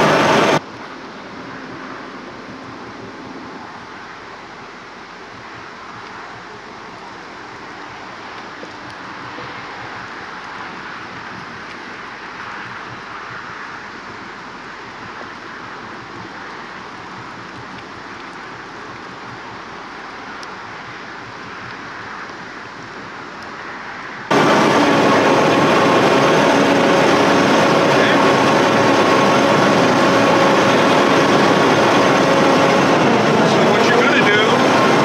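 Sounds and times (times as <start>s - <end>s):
truck engine from inside cab: 0.0s - 7.2s, 24.3s - 35.0s
wind and water hissing: 0.0s - 28.2s
constant whine: 0.0s - 35.0s.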